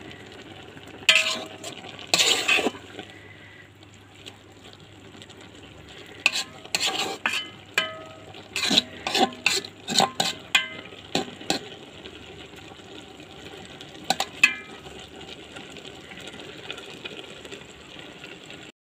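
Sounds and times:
low cooking sizzle: 0:00.0 - 0:18.7
spatula clinking against pan: 0:01.1 - 0:01.6, 0:06.3 - 0:11.7, 0:14.1 - 0:14.8.

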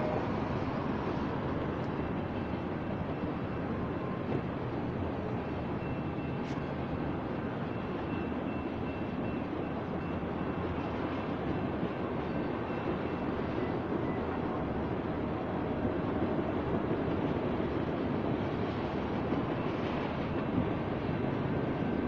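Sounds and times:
steel train wheels on track: 0:00.0 - 0:22.0.

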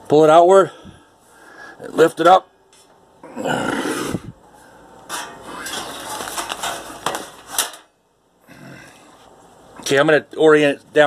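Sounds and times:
metal cover scraping: 0:05.0 - 0:07.9
metal cover rattling and clicking: 0:05.1 - 0:07.9.

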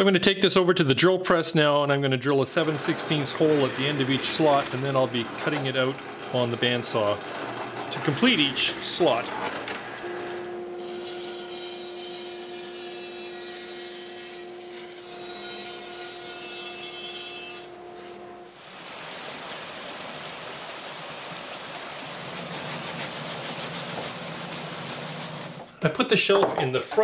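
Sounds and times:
bandsaw cutting wood: 0:02.5 - 0:18.4, 0:22.2 - 0:25.7
orbital sander on wood: 0:02.6 - 0:10.5, 0:22.2 - 0:25.7
motor hum: 0:02.6 - 0:11.2, 0:17.6 - 0:25.8
drill press boring wood: 0:02.6 - 0:12.0, 0:22.2 - 0:25.7.

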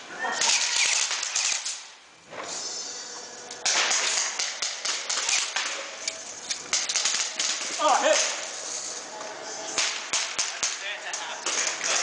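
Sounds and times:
airsoft guns firing: 0:00.4 - 0:02.0, 0:03.6 - 0:06.0, 0:06.6 - 0:08.4, 0:09.8 - 0:12.0.

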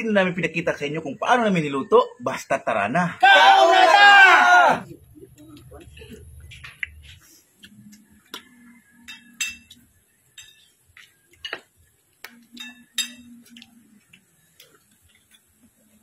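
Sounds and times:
spoons clinking on plates: 0:09.0 - 0:10.8, 0:12.5 - 0:13.6.

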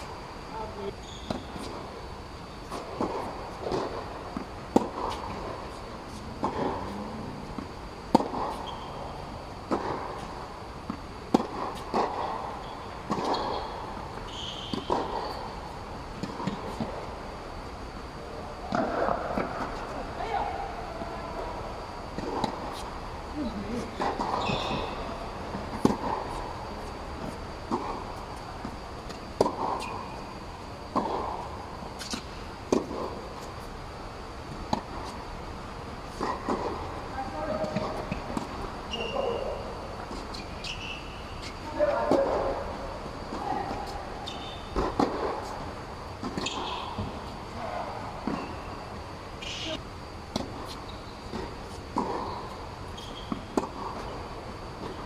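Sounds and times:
shoe squeak: 0:00.9 - 0:01.6, 0:08.5 - 0:09.2, 0:12.6 - 0:13.7, 0:14.3 - 0:15.5, 0:24.2 - 0:25.2, 0:29.7 - 0:30.3, 0:38.9 - 0:39.6, 0:40.3 - 0:41.6, 0:44.2 - 0:44.8, 0:46.4 - 0:48.8, 0:50.7 - 0:51.3, 0:52.3 - 0:54.1
tennis ball bouncing: 0:02.7 - 0:17.1, 0:18.7 - 0:20.5, 0:21.3 - 0:23.0, 0:23.7 - 0:33.6, 0:34.5 - 0:35.2, 0:36.0 - 0:49.1, 0:50.3 - 0:54.2
tennis racket hitting ball: 0:07.5 - 0:08.9, 0:09.6 - 0:13.6, 0:22.1 - 0:22.9, 0:23.8 - 0:30.1, 0:44.7 - 0:45.5.

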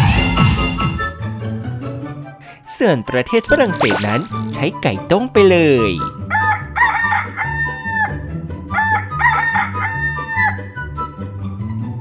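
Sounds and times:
rooster crowing: 0:06.3 - 0:08.1, 0:08.8 - 0:10.6.

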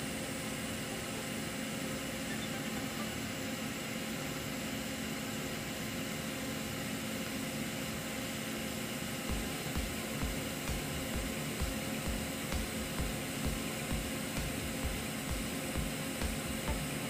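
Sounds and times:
steady welder hum: 0:00.0 - 0:17.0
welding arc hissing: 0:09.1 - 0:17.0.

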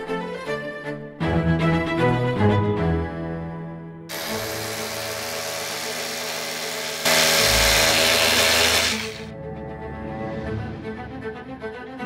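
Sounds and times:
string music: 0:00.0 - 0:05.2, 0:08.3 - 0:12.0
power drill running: 0:04.1 - 0:09.3.

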